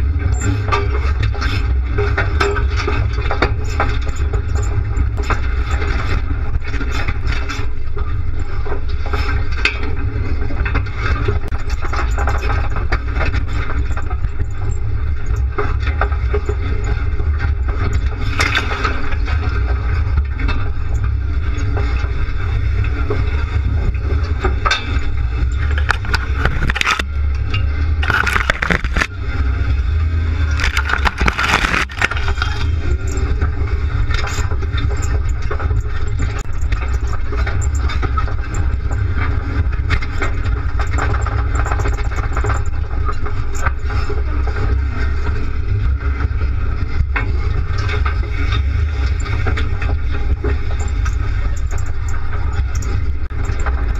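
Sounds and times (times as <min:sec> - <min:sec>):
body rattling and clatter: 0:00.0 - 0:53.9
engine low rumble: 0:00.0 - 0:53.9
scrapes and knocks: 0:23.5 - 0:29.1, 0:30.4 - 0:38.3.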